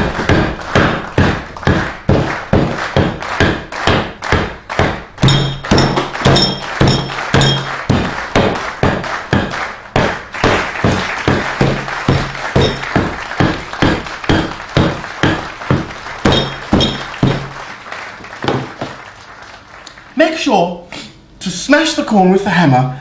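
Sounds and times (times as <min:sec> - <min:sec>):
hammer smashing corn: 0:00.0 - 0:17.6.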